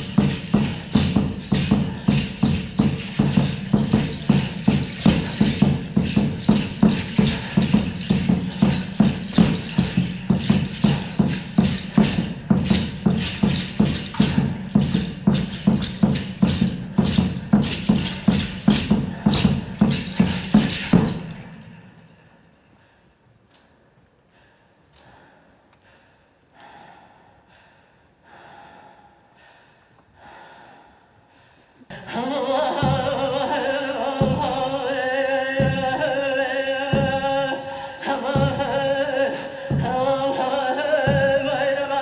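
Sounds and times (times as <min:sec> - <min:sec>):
sharp percussion strikes: 0:00.0 - 0:22.1, 0:31.9 - 0:42.0.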